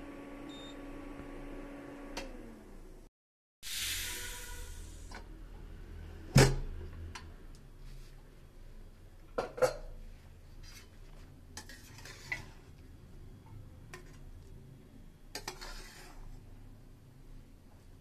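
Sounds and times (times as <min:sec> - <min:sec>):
metal spoon scraping rice in pot: 0:11.6 - 0:12.7, 0:15.3 - 0:16.4.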